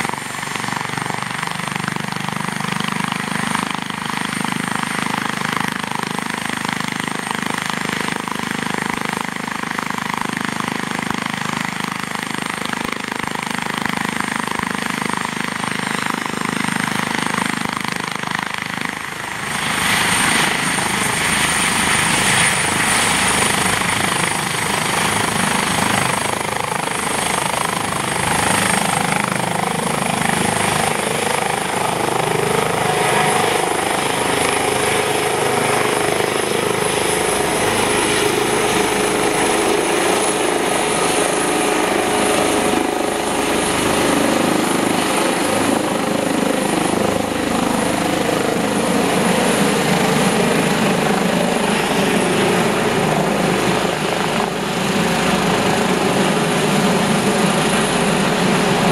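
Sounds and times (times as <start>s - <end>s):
helicopter rotor and turbine noise: 0.0s - 58.9s
high turbine whine: 18.8s - 58.9s.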